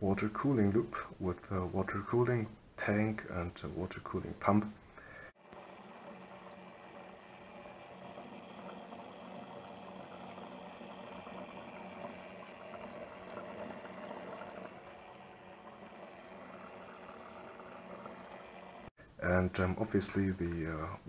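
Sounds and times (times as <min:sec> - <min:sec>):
pump low hum: 0:05.0 - 0:18.9
water bubbling and trickling: 0:05.4 - 0:18.9.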